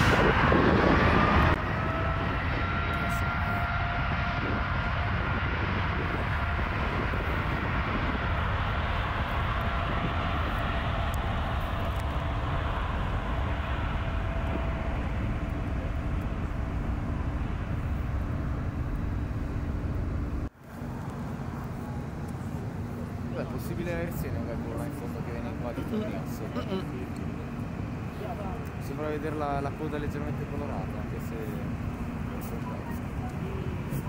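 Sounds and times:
jet engine rumble with fan whine: 0:00.0 - 0:34.0.

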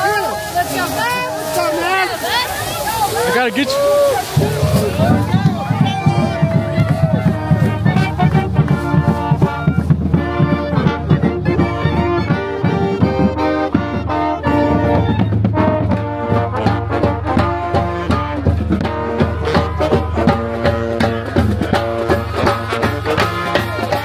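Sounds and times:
marching drum strokes: 0:00.0 - 0:24.0
brass section holding chords: 0:04.2 - 0:24.0.

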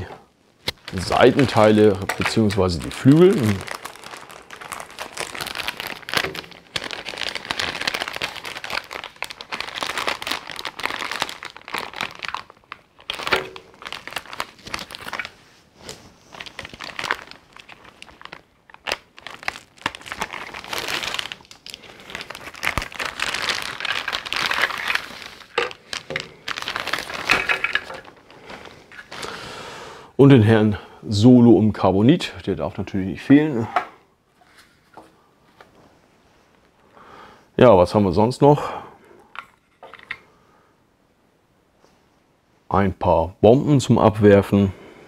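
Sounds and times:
plastic bags crinkling: 0:00.6 - 0:29.5.

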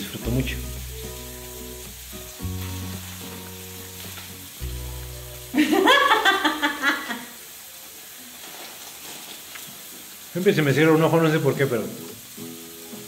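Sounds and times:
slow held chords music: 0:00.2 - 0:06.3.

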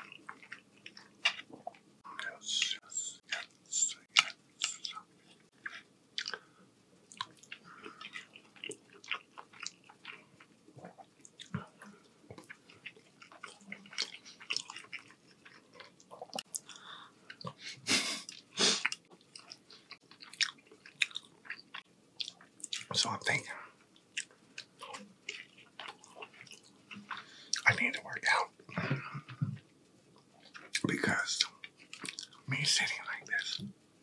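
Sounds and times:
wet chewing: 0:00.0 - 0:02.7, 0:03.3 - 0:17.6, 0:18.2 - 0:23.0, 0:23.9 - 0:27.7, 0:30.2 - 0:32.4.

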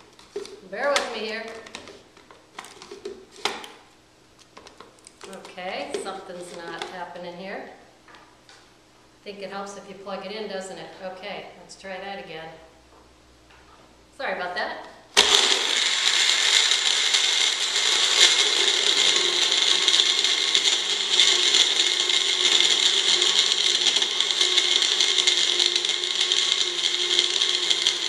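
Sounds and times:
blender blending ice: 0:05.4 - 0:07.0, 0:15.2 - 0:28.0.

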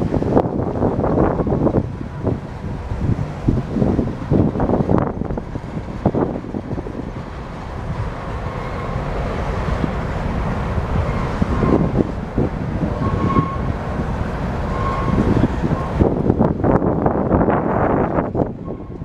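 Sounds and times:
freight train wheels on rails: 0:00.0 - 0:19.0
faint wheel squeals: 0:12.9 - 0:13.7, 0:14.6 - 0:16.0.

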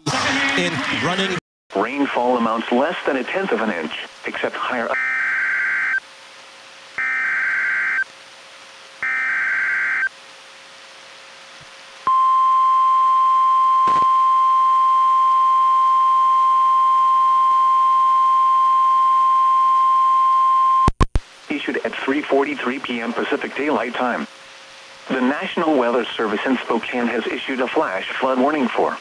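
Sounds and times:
steady warning alarm tone: 0:05.0 - 0:06.0, 0:07.0 - 0:08.1, 0:09.0 - 0:10.1.

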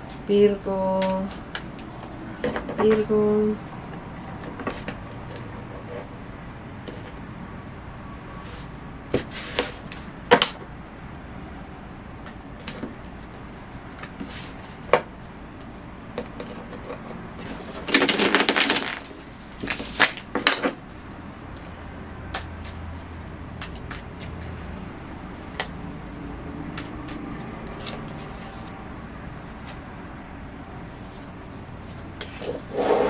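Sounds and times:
cards tapping and snapping: 0:17.9 - 0:20.7, 0:22.3 - 0:22.9, 0:23.6 - 0:25.8, 0:26.7 - 0:28.3.

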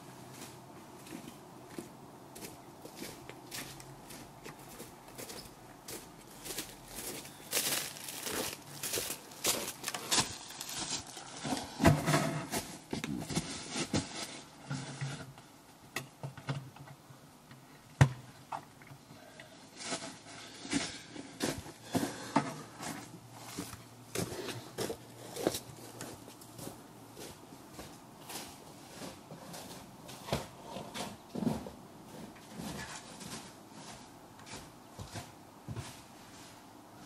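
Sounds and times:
footsteps crunching on frozen leaves: 0:00.3 - 0:11.4.

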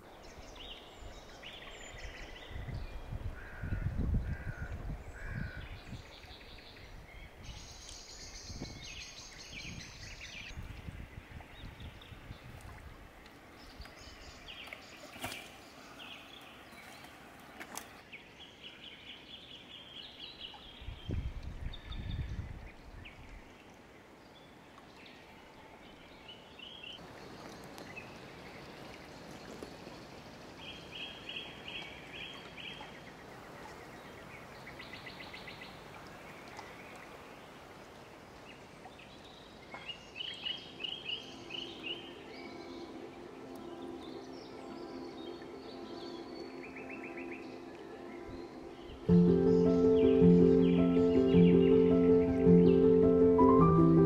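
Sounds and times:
faint outdoor hiss: 0:00.0 - 0:54.0
songbirds trilling: 0:39.1 - 0:54.0.

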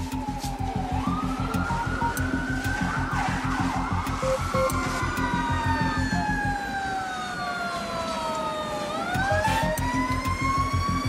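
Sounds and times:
emergency siren wailing: 0:00.0 - 0:11.0
fast low pulsing beat: 0:00.1 - 0:05.8.

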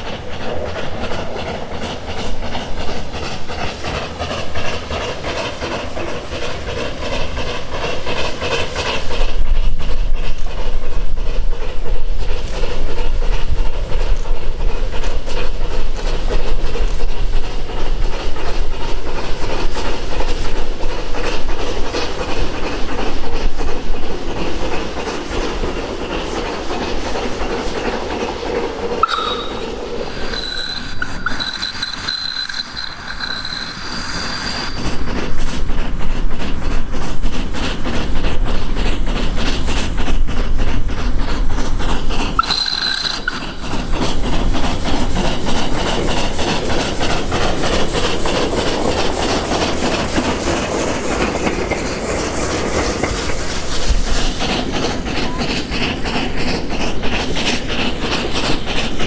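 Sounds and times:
steam exhaust beating rapidly: 0:00.0 - 0:59.0
wheels over rail joints: 0:00.0 - 0:59.0
high-pitched squeals: 0:29.0 - 0:35.0, 0:42.4 - 0:43.8.

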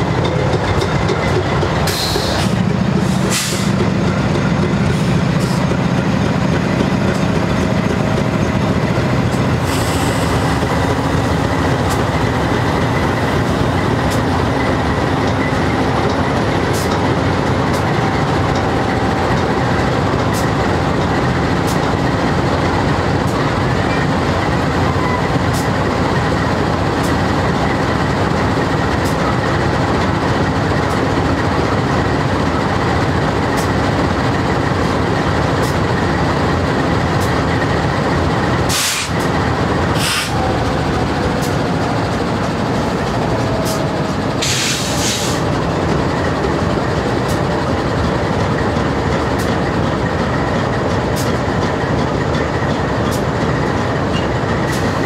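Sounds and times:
diesel locomotive engine drone: 0:00.0 - 0:55.0
air hisses: 0:44.4 - 0:45.4.

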